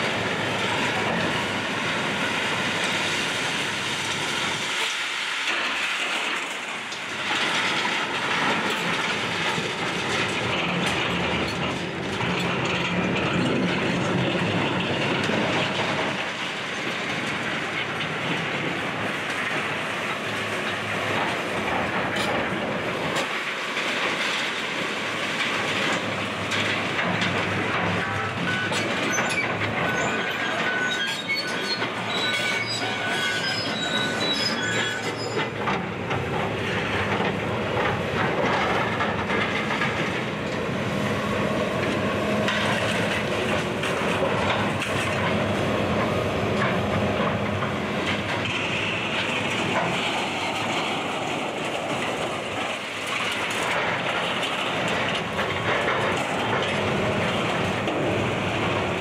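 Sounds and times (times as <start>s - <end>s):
excavator running: 0.0s - 59.0s
short metallic squeals: 28.2s - 35.5s.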